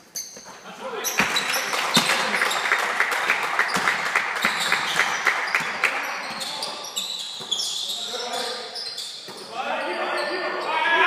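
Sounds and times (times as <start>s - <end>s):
people clapping: 1.2s - 6.2s.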